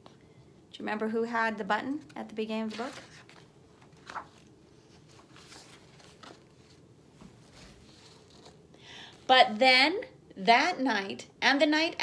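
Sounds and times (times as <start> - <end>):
paper page rustling: 2.0 - 8.7.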